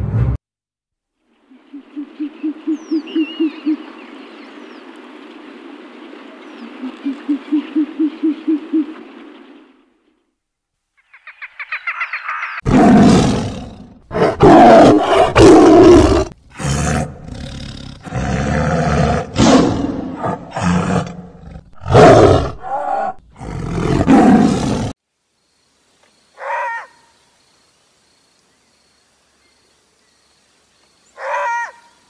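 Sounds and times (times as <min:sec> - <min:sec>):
tiger roaring and growling: 0:12.6 - 0:25.0.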